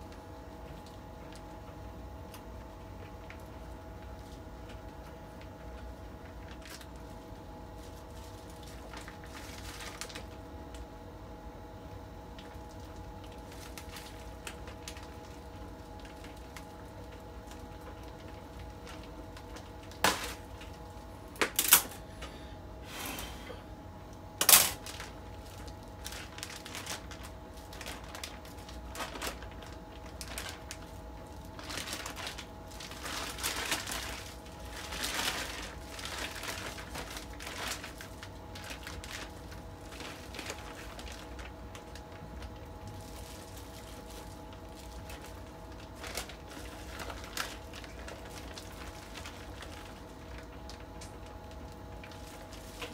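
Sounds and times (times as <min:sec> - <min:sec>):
faint steady hum: 0:00.0 - 0:52.9
plastic bag crinkling: 0:00.6 - 0:11.0, 0:12.0 - 0:22.5, 0:24.4 - 0:52.9
wet cabbage squishing: 0:24.8 - 0:52.9.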